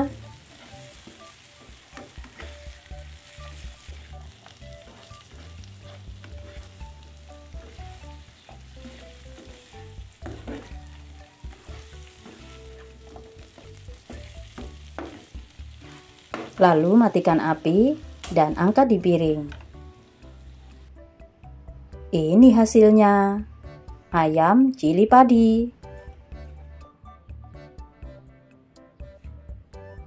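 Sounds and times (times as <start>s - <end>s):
chicken wings sizzling in a pan: 0.0s - 20.9s
spatula scraping and knocking pan: 0.4s - 2.8s, 3.4s - 16.6s.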